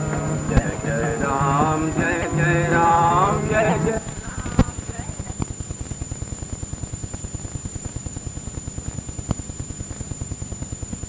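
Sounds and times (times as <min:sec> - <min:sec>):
rapid low throb: 0:00.0 - 0:05.1
thin high-pitched whine: 0:00.0 - 0:11.0.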